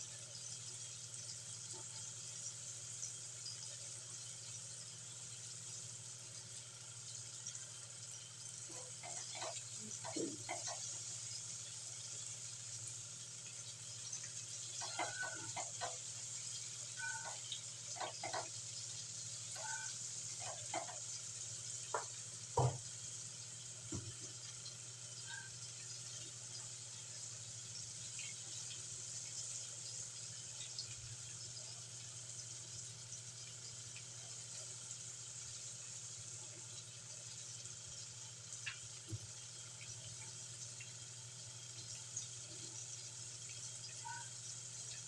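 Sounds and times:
chicken deep-frying in oil: 0.0s - 45.0s
spatula knocking against pan: 21.9s - 22.8s.

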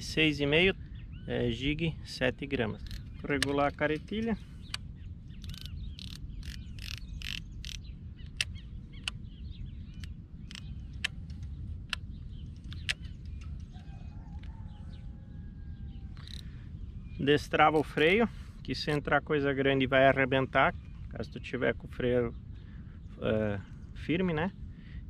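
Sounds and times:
low wind rumble: 0.0s - 25.0s
faint bird chirps: 0.1s - 18.4s
fishing reel clicking: 5.4s - 7.8s.

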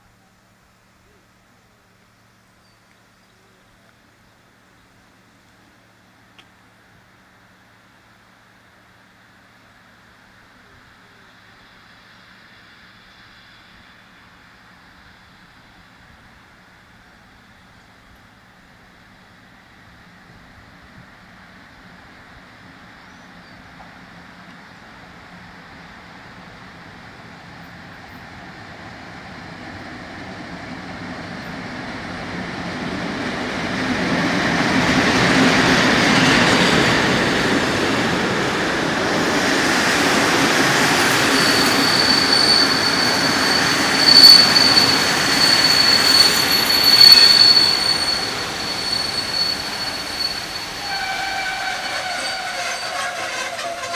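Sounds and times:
passenger train arriving: 0.0s - 53.9s
loud train clanks: 29.5s - 53.9s
high brake squeal: 36.0s - 37.4s, 40.6s - 53.9s.

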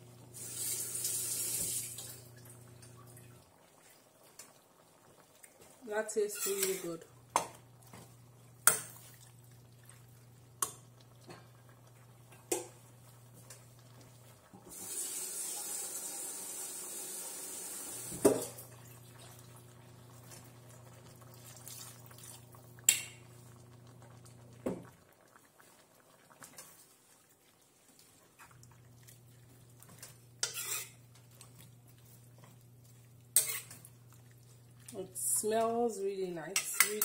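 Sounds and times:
metal spoon clinking on pan: 36.6s - 37.0s.

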